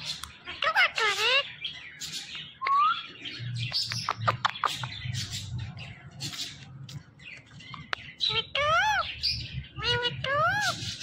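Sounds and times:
parakeet chirping and clicking: 0.0 - 1.4, 3.6 - 9.0.

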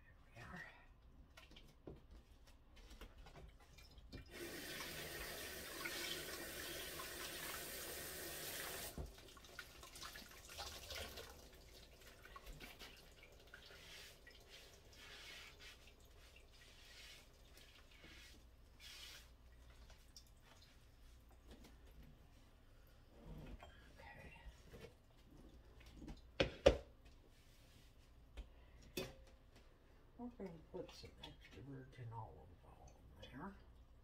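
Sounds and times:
tap water running into sink: 3.7 - 18.3.

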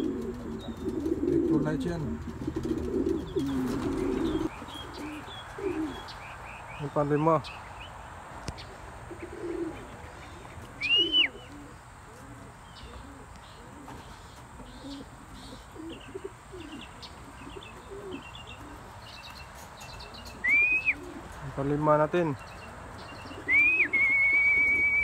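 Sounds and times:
pigeons cooing: 0.0 - 7.1, 8.5 - 25.0
small birds chirping: 0.0 - 25.0
rising and falling whistle: 20.4 - 21.0, 23.5 - 25.0.

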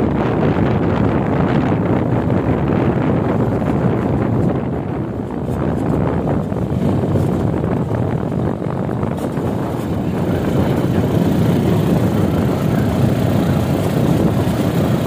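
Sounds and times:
motorcycle engine running: 0.0 - 15.0
road noise: 0.0 - 15.0.

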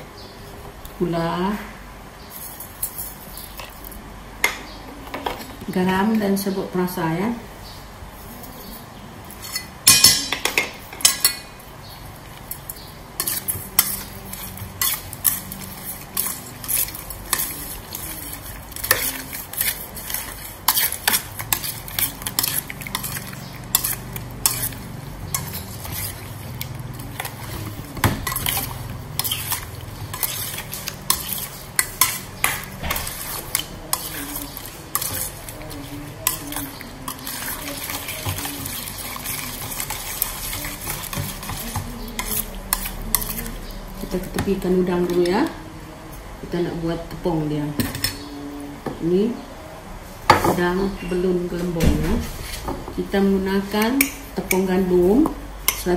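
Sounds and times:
metal spoon clinking in steel bowl: 9.5 - 11.5.

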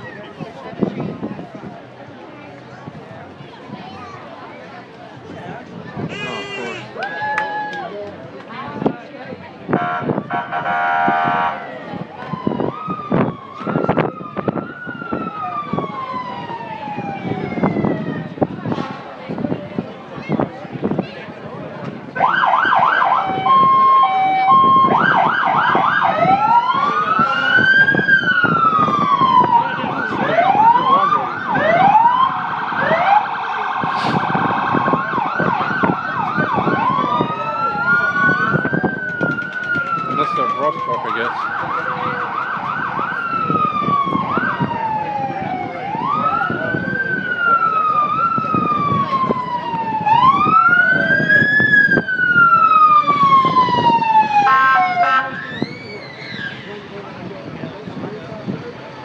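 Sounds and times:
fire engine sirens wailing: 9.7 - 19.4, 22.1 - 59.0.

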